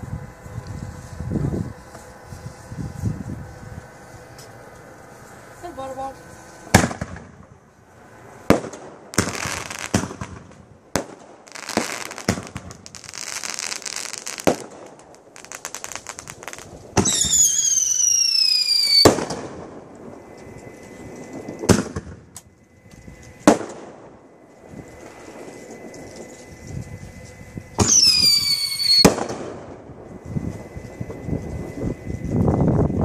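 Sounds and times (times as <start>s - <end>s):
firework crackling: 0.0s - 33.0s
firework bangs: 6.7s - 7.6s, 8.4s - 20.3s, 21.0s - 22.5s, 23.4s - 26.5s, 27.7s - 32.0s
falling firework whistle: 8.5s - 22.5s, 23.3s - 33.0s.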